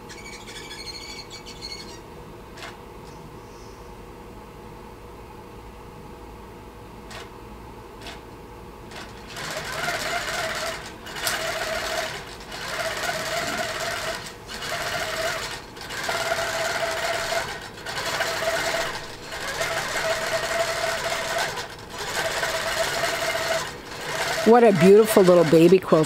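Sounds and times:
quilting machine whirring: 7.1s - 26.0s.

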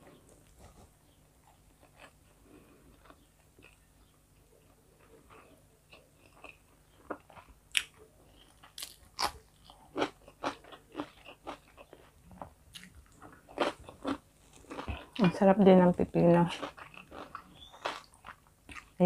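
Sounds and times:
cucumber crunching: 5.0s - 15.3s, 16.6s - 19.0s.

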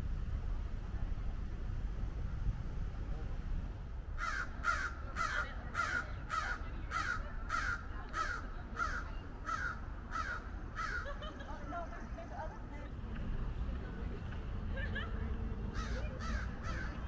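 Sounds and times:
bird harsh calls: 4.2s - 11.2s.

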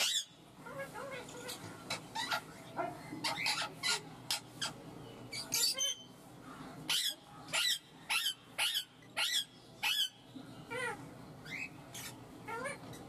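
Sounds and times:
parakeet shrieking: 0.0s - 2.6s, 3.2s - 4.8s, 6.9s - 13.0s
soft wavering bird calls: 0.0s - 13.0s.

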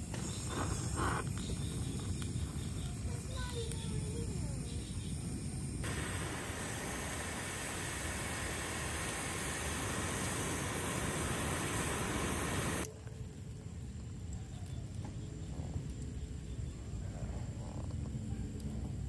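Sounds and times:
electric blower hissing: 5.8s - 12.9s.

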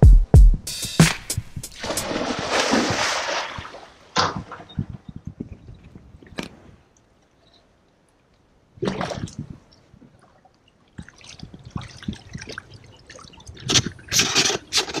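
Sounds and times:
pool water splashing: 1.0s - 4.7s.

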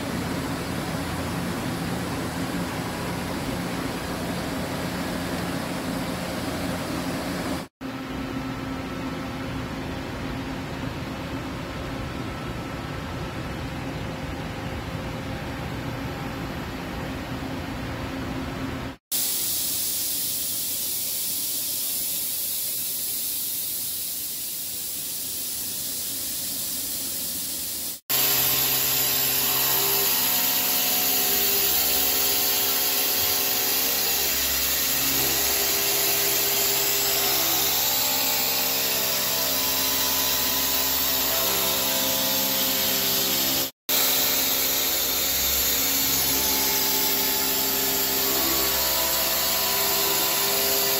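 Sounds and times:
steady hiss: 19.1s - 28.0s
milling machine cutting: 28.1s - 50.9s.

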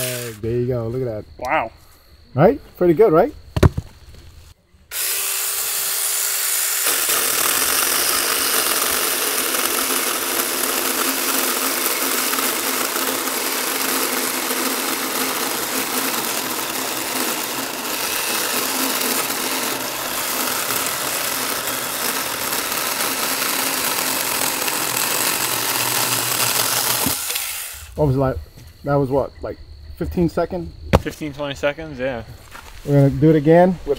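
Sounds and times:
electric chainsaw cutting log: 0.0s - 0.4s, 4.9s - 28.0s.

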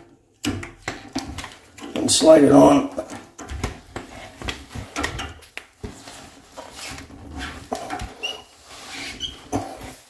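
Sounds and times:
plastic rubbing on glass: 3.2s - 10.0s.

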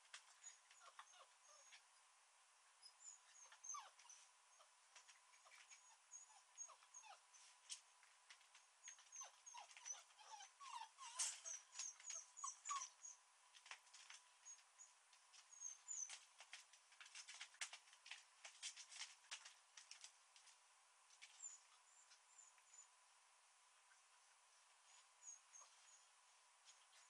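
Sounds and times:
dogs whimpering and whining: 0.1s - 1.9s, 2.8s - 7.5s, 8.8s - 13.2s, 14.4s - 16.3s, 21.2s - 23.0s, 24.8s - 27.0s.

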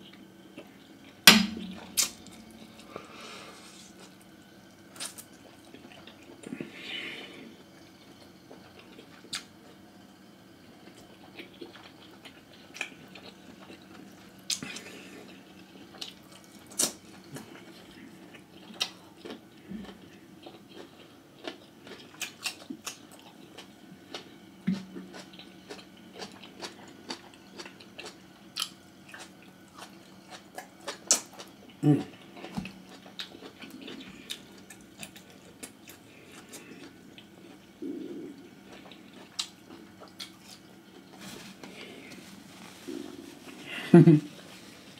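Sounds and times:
wet chewing and lip smacks: 38.7s - 40.6s.

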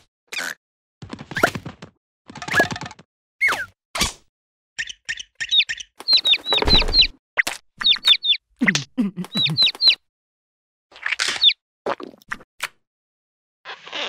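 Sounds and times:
cartoon chick cheeping: 9.3s - 10.0s.

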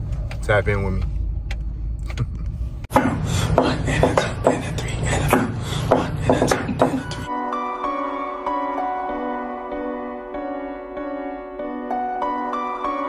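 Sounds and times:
low rumble inside car: 0.0s - 7.3s.

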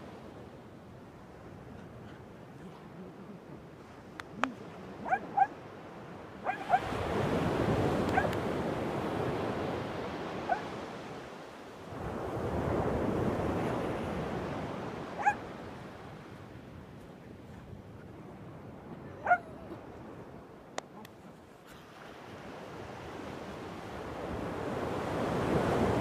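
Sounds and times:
waves breaking: 0.0s - 16.6s, 17.4s - 26.0s
dog yipping: 5.0s - 5.5s, 6.4s - 6.9s, 8.1s - 8.4s, 10.5s - 10.7s, 15.2s - 15.4s, 19.2s - 19.5s.

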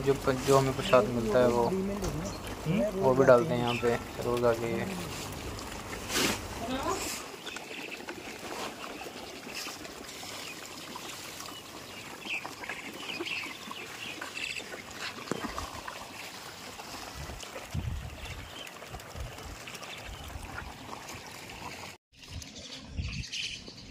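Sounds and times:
lake water lapping: 0.0s - 22.0s
fish splashing at surface: 4.0s - 22.0s.

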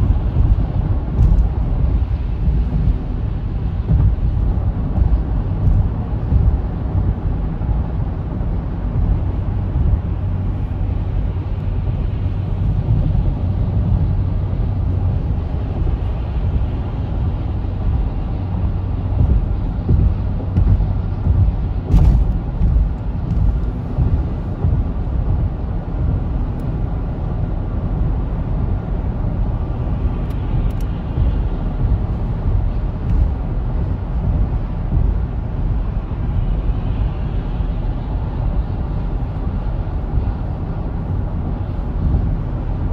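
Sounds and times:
car cabin road and engine rumble: 0.0s - 42.9s
click: 30.2s - 30.9s.

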